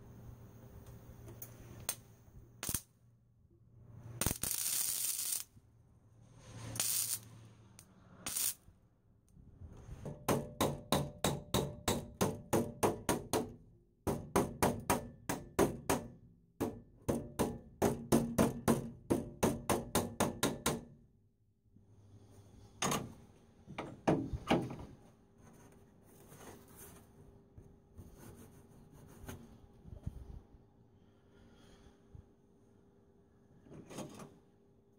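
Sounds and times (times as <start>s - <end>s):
welder tack welding: 2.6s - 2.9s, 4.2s - 5.6s, 6.6s - 8.6s.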